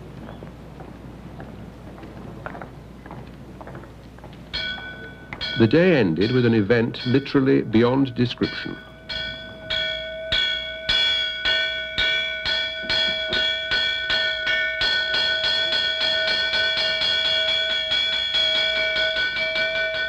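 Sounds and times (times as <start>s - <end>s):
hand bell ringing: 4.6s - 20.0s.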